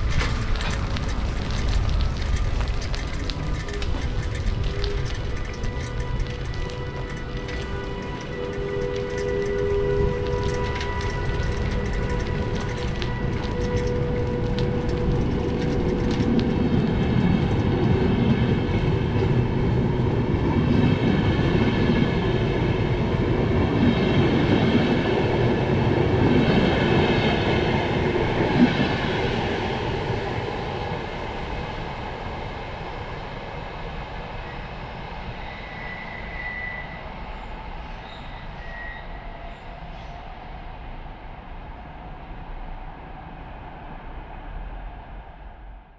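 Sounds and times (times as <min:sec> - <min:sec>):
train wheels rumbling on rail: 0:00.0 - 0:45.5
high whining tone: 0:02.4 - 0:17.4.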